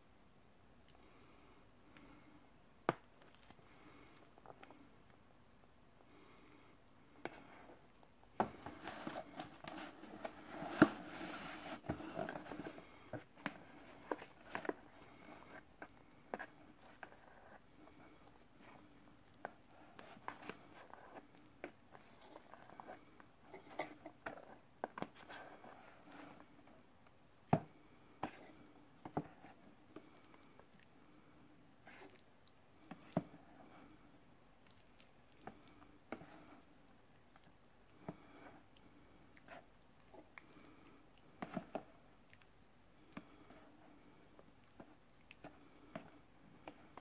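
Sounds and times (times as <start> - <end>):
soft squishing of food: 0.6 - 47.0
spoon scraping plastic tray: 8.4 - 12.9.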